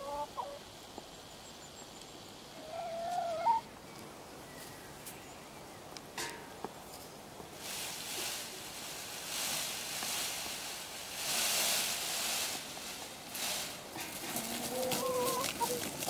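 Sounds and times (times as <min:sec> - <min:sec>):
peacock feathers rustling: 0:06.9 - 0:16.0.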